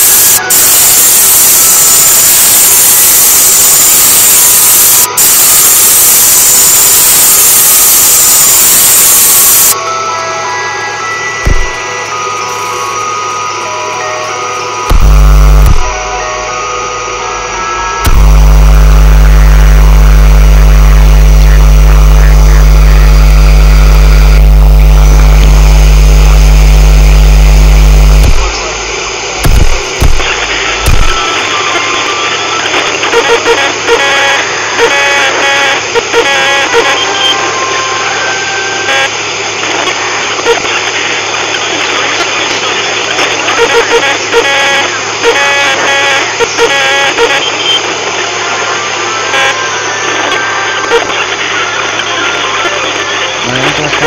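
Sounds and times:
loud electrical hum: 0.0 - 54.0
loud static hiss: 0.0 - 54.0
faint music: 9.8 - 23.3.

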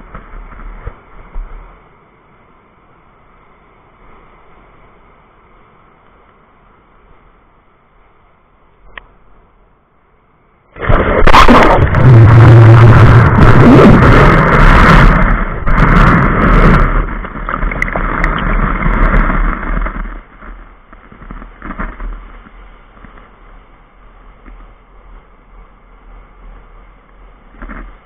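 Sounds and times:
surf hiss: 0.0 - 28.0
wave rushing water: 10.7 - 27.9.

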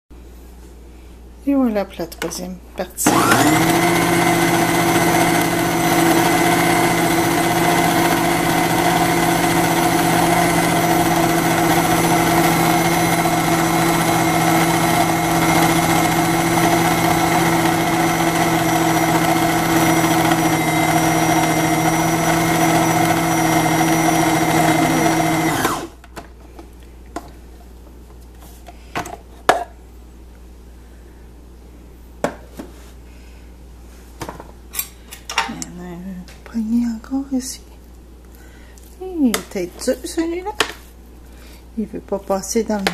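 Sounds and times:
food processor motor running: 3.0 - 26.0.

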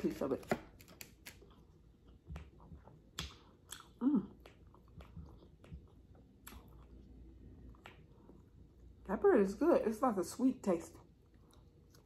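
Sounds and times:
chewing bread: 0.7 - 9.1, 11.0 - 12.0
wet mouth clicks: 3.1 - 7.0.

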